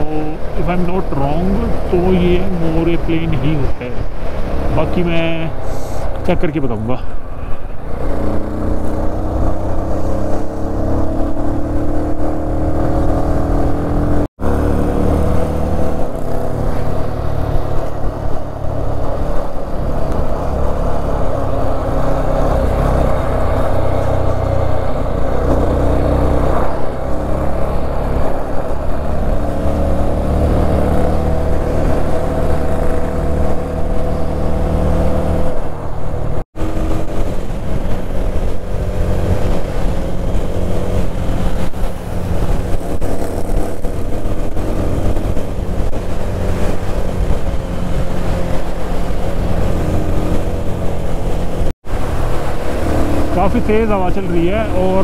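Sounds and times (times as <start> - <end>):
wind rushing over microphone: 0.0 - 55.0
motorcycle engine running: 7.5 - 55.0.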